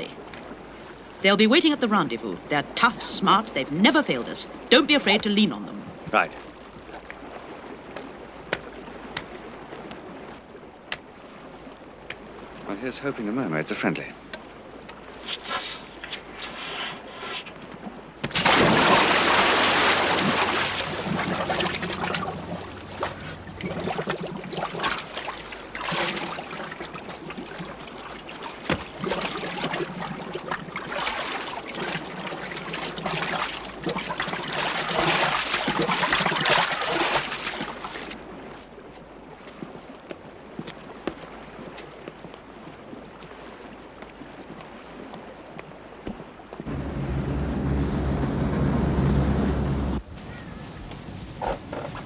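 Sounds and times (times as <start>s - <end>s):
water sloshing and bubbling: 0.0s - 50.2s, 50.8s - 52.0s
loud splash into water: 18.3s - 26.7s.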